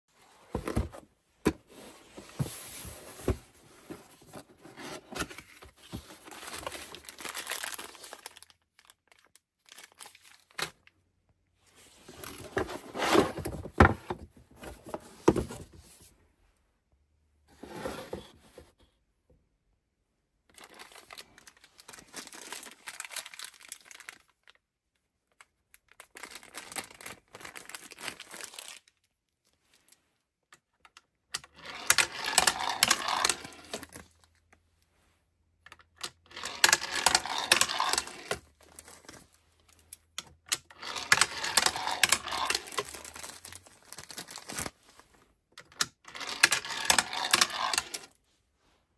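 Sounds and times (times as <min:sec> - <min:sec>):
toy cars clacking: 0:31.4 - 0:33.9, 0:36.0 - 0:38.4, 0:40.5 - 0:43.1, 0:45.7 - 0:48.1
toy cars rattling down wooden ramp: 0:31.4 - 0:33.9, 0:36.0 - 0:38.4, 0:40.5 - 0:43.2, 0:45.8 - 0:48.1.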